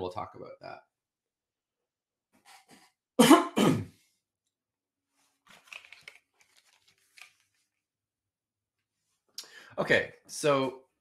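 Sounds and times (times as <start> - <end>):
man coughing: 3.2 - 4.0
headphones rustling: 5.1 - 7.8.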